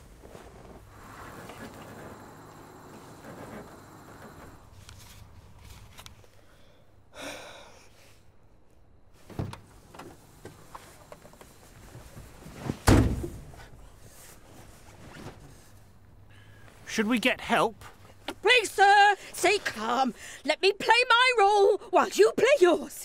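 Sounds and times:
scraping slide: 0.0s - 6.1s.

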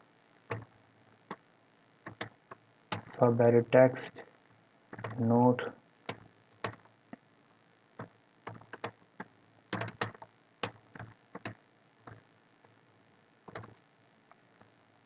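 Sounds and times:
computer keyboard keystrokes: 4.9s - 5.2s, 8.5s - 9.0s, 9.7s - 11.6s.

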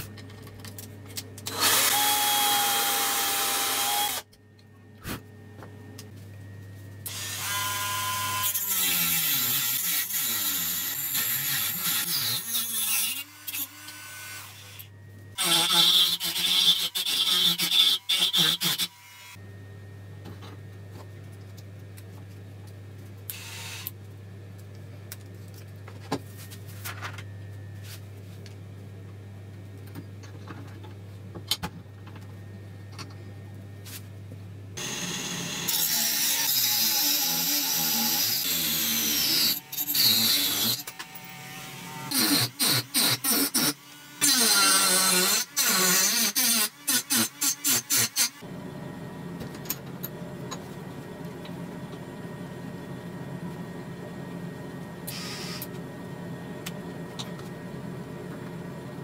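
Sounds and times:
low hum and light clicks: 4.3s - 6.8s, 20.2s - 26.1s.

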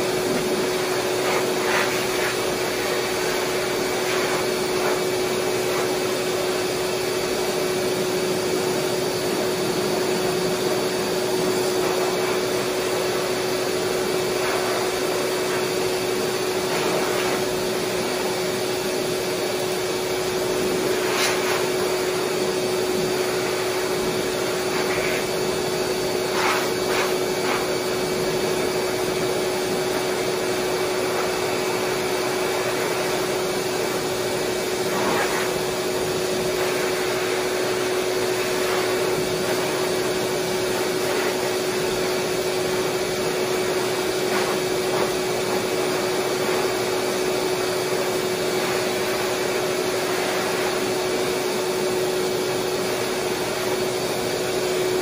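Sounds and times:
dryer blowing air with motor whine: 0.0s - 55.0s.

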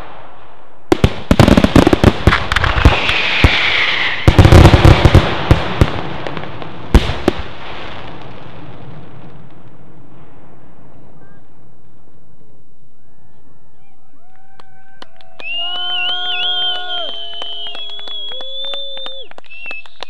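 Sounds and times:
fireworks bangs: 0.0s - 12.7s, 15.4s - 20.0s
fireworks crackling hiss: 1.1s - 10.6s.

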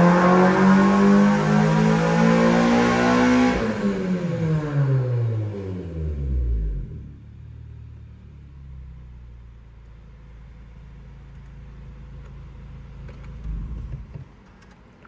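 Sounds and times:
car engine idling: 6.1s - 15.0s.

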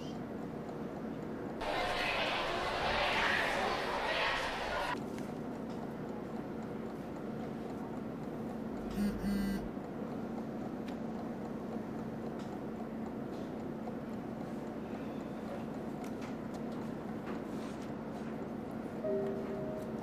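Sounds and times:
phone vibrating buzzes: 8.9s - 9.7s.

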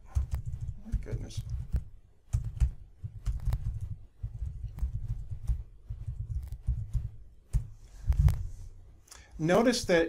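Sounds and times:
computer keyboard typing: 0.0s - 7.7s.

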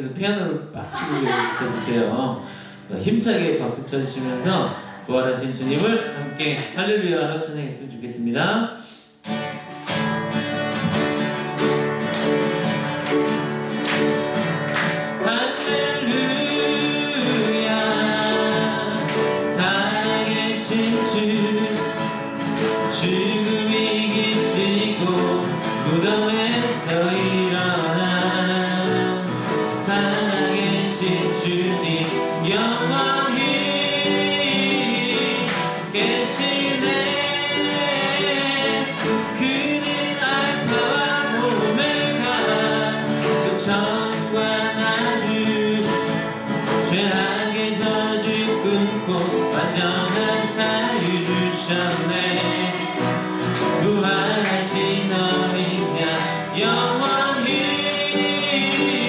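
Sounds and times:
strummed acoustic guitar: 0.9s - 7.3s, 8.8s - 59.0s
man singing into microphone: 15.2s - 59.0s.

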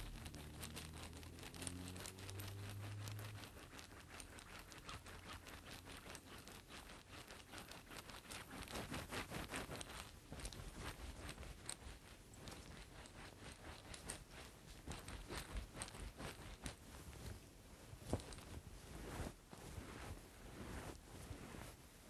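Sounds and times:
wooden balls clicking and rattling: 0.0s - 8.9s.

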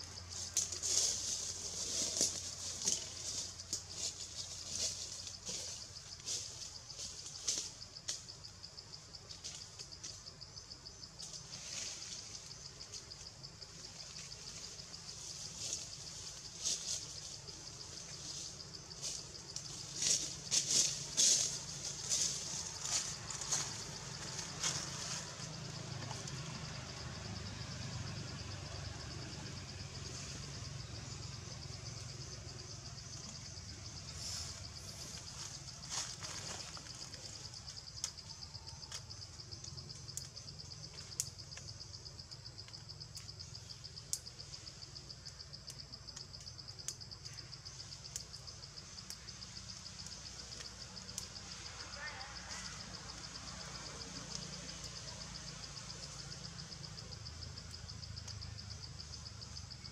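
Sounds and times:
high-pitched insect chorus: 0.0s - 59.9s.

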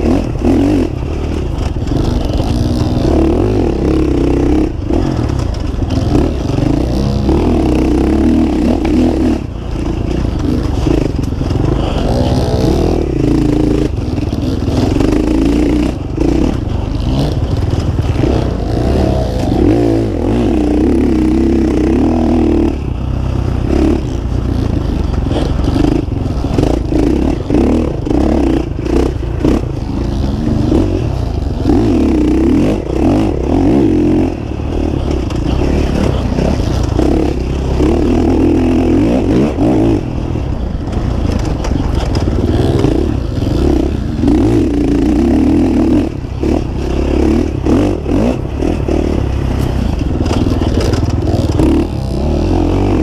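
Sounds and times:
dirt bike engine revving: 0.0s - 53.0s
bike knocks and rattles: 4.6s - 45.3s, 46.0s - 53.0s.

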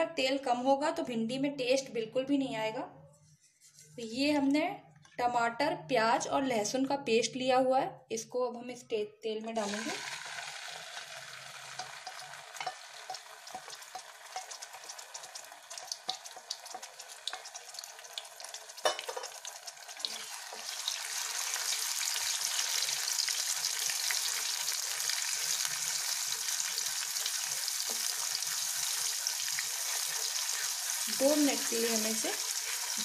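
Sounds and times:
paste frying in hot oil: 9.6s - 33.0s
wooden spatula stirring: 11.8s - 18.8s, 26.9s - 33.0s.

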